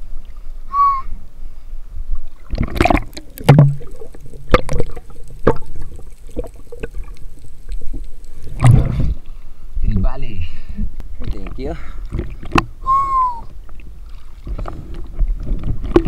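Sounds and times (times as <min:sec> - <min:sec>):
water splashing and sloshing: 0:02.2 - 0:09.6, 0:11.2 - 0:12.8, 0:13.4 - 0:16.0.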